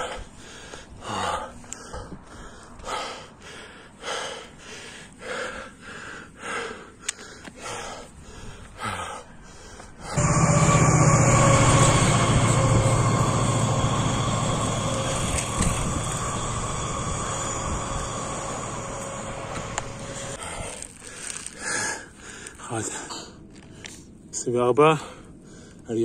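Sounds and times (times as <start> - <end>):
heavy rhythmic breathing: 0.0 - 10.2, 15.9 - 25.9
passing train rumble: 10.2 - 20.4.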